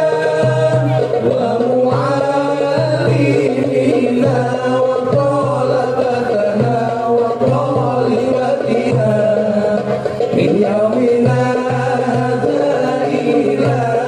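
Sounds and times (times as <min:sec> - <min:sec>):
devotional singing: 0:00.0 - 0:14.0
pulsing rhythmic accompaniment: 0:00.0 - 0:14.0.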